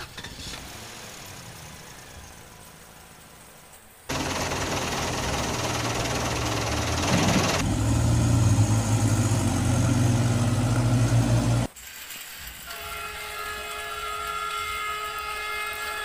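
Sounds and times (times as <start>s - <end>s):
bus engine idling: 4.1s - 11.7s.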